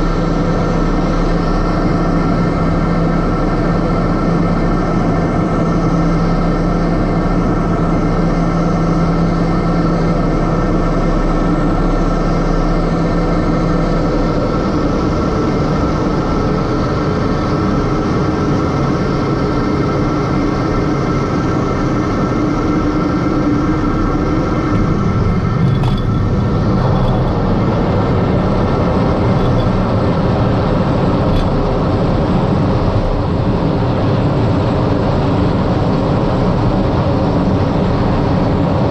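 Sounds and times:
turboprop engine droning: 0.0s - 38.9s.

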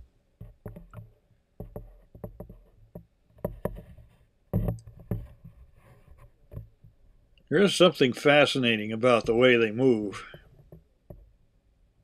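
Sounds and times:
knocks and bumps: 0.4s - 7.0s.

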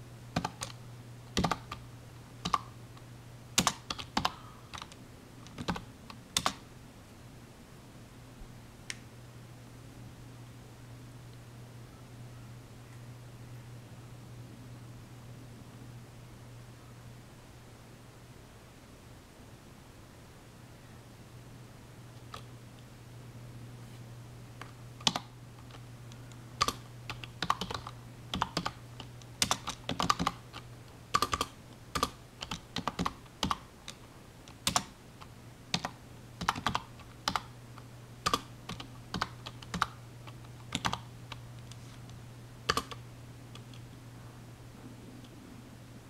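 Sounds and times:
steady low hum: 0.0s - 46.0s
computer keyboard typing: 0.4s - 1.8s, 2.4s - 2.7s, 3.6s - 6.6s, 25.0s - 25.8s, 26.6s - 37.5s, 38.2s - 41.4s, 42.7s - 43.0s.

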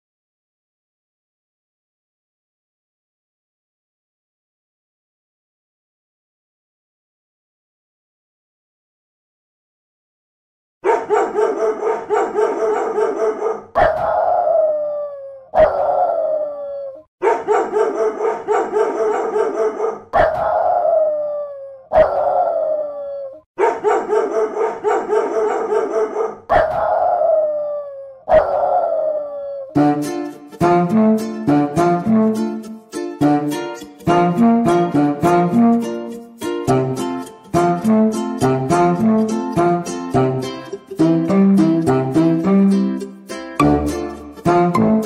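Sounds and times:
dog howling: 11.1s - 29.8s
brass music: 29.8s - 43.0s, 43.6s - 45.0s.

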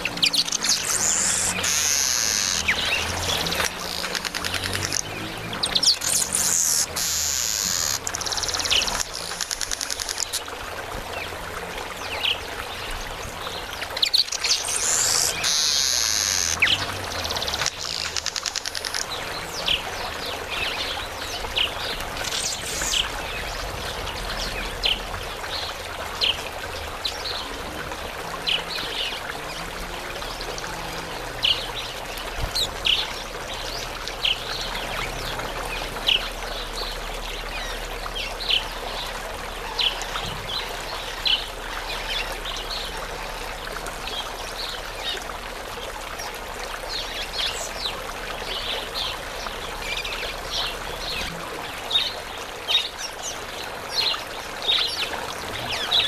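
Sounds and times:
birds rasping buzzy chatter: 0.0s - 10.3s
birds high chirps: 0.0s - 10.4s, 13.9s - 26.4s, 30.2s - 39.0s.

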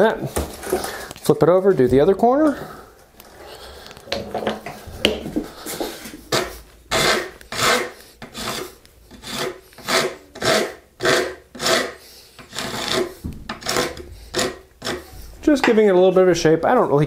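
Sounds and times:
hand rasp on wood: 5.7s - 15.3s.

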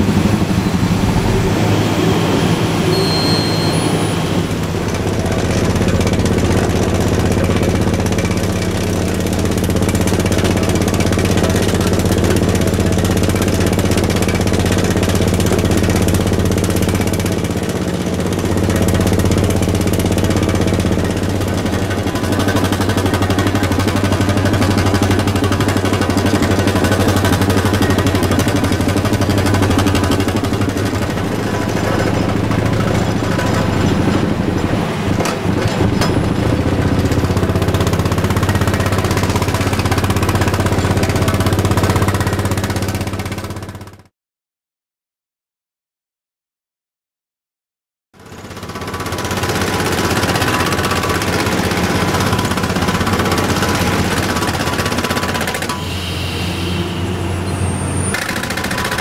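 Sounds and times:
pole drill machine drone: 0.0s - 43.9s, 48.2s - 59.0s
truck engine: 0.0s - 44.0s, 48.2s - 59.0s.

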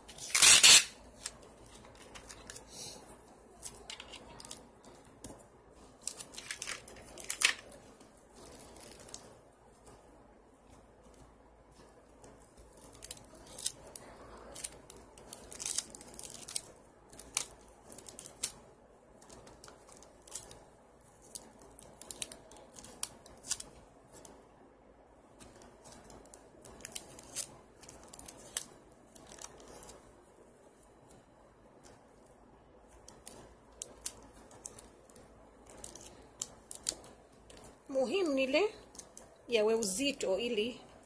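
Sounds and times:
adhesive tape crackling: 0.0s - 40.2s.

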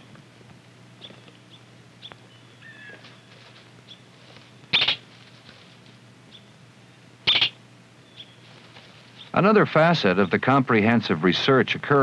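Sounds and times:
faint bird chirps: 1.0s - 4.1s, 4.7s - 5.0s, 6.3s - 9.4s
short high animal calls: 4.7s - 5.1s, 7.2s - 7.6s.

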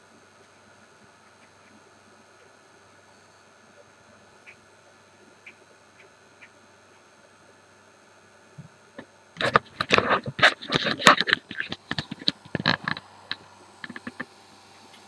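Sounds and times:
faint steady hum: 0.0s - 15.0s
phone handling knocks and scrapes: 9.4s - 13.0s.

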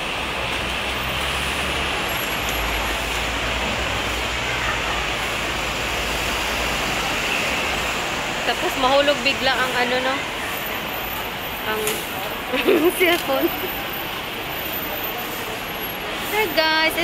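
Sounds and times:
road traffic rumble and hiss: 0.0s - 17.0s.

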